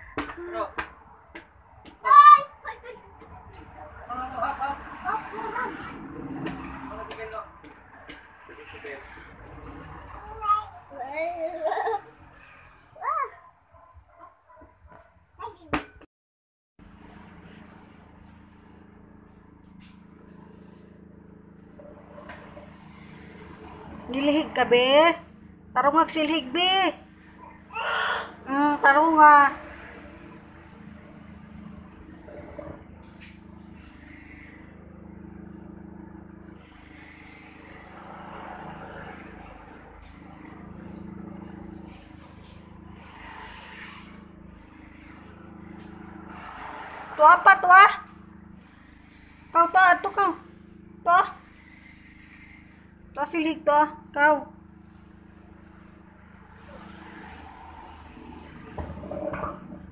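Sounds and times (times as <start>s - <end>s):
broom brushing the floor: 16.8s - 59.9s
low mechanical hum: 16.8s - 59.9s.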